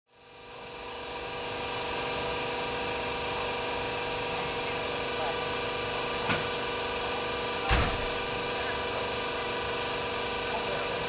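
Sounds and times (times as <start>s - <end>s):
diesel locomotive drone: 0.1s - 11.0s
short thump: 7.7s - 8.2s.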